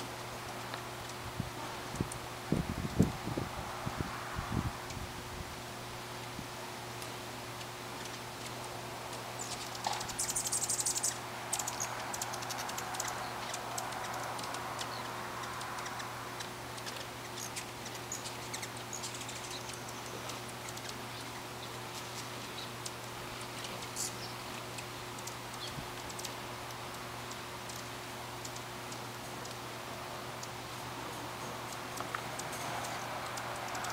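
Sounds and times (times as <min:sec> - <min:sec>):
steady low hum: 0:00.0 - 0:33.9
hummingbird chip calls: 0:09.1 - 0:29.6, 0:30.2 - 0:33.9.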